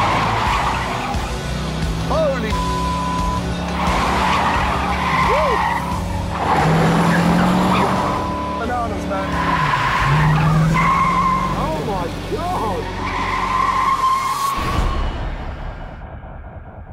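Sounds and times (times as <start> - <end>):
tyres squealing: 0.0 - 14.6
car engine revving: 0.0 - 16.8.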